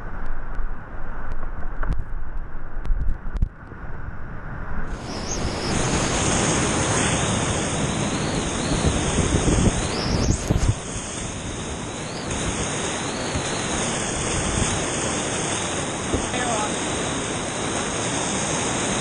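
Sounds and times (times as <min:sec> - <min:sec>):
whitewater rapids rushing: 0:05.0 - 0:19.0.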